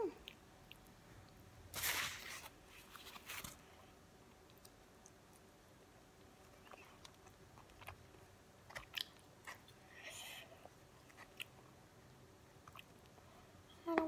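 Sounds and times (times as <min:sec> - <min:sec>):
faint chewing: 0:00.1 - 0:01.4, 0:03.0 - 0:11.8, 0:12.6 - 0:14.0
paper food wrapper crinkling: 0:01.8 - 0:03.6
paper rustle: 0:01.8 - 0:03.7.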